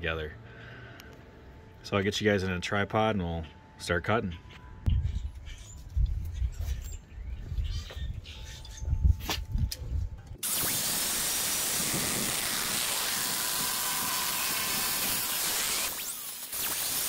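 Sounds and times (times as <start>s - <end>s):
angle grinder cutting steel: 10.4s - 17.0s.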